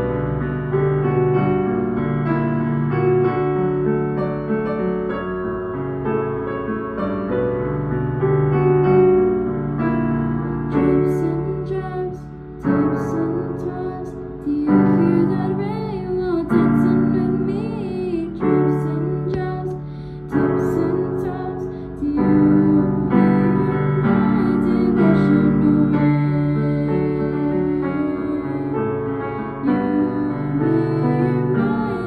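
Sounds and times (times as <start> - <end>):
digital piano chords: 0.0 - 32.0
girl singing: 10.7 - 32.0.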